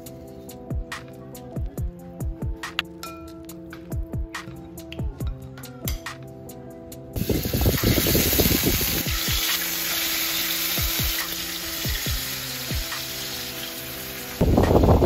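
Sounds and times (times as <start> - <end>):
meat sizzling in oil: 7.2 - 15.0.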